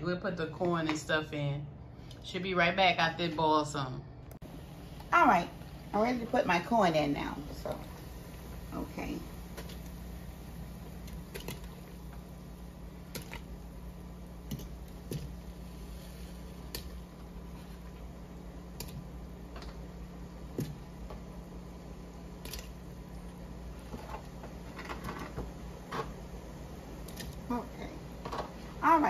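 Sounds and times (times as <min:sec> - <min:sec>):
steady low hum: 0:00.0 - 0:29.0
corn splashing into pot: 0:09.4 - 0:15.7.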